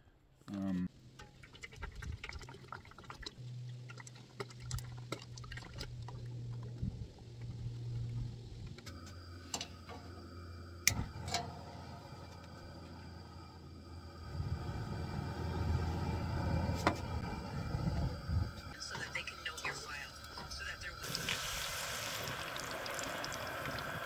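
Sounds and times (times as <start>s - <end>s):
oil pouring into metal pot: 1.2s - 6.7s, 21.0s - 24.0s.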